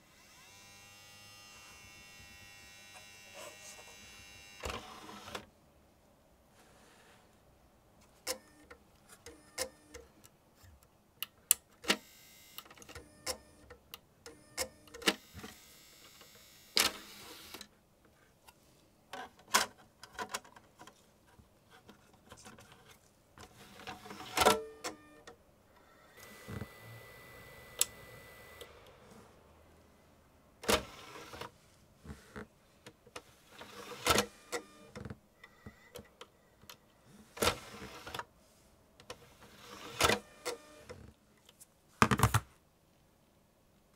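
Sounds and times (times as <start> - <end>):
drive motor whirring: 26.1 - 29.0.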